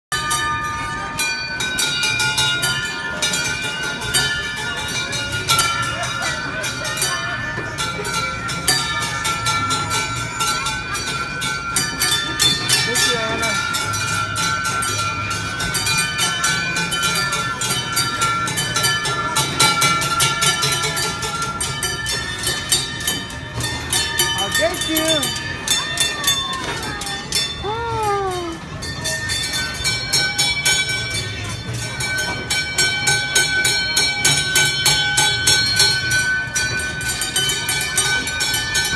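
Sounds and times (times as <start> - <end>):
carousel ride music: 0.1 - 38.9
small brass bells jangling: 0.2 - 38.9.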